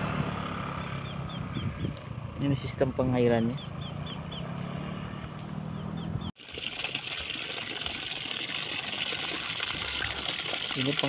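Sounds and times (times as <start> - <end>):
bird chirp: 0.6 - 6.4
water gushing from a pipe: 6.4 - 11.0.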